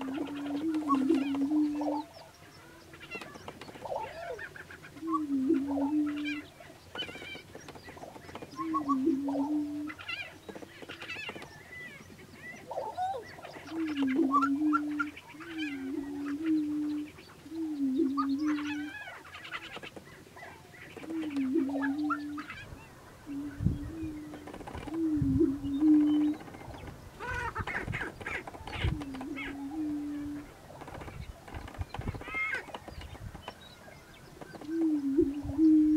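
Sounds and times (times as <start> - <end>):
cackling and whooping bird calls: 27.2 - 30.4.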